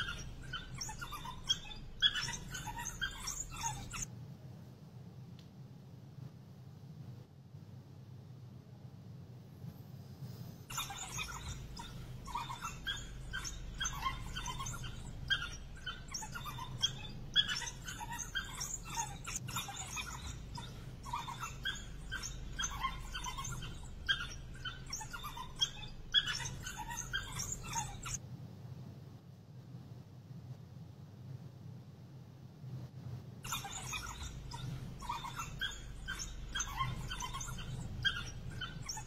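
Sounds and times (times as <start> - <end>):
wild dogs chirping: 0.0 - 4.1, 10.7 - 28.2, 33.4 - 39.0
steady low hum: 9.7 - 29.2.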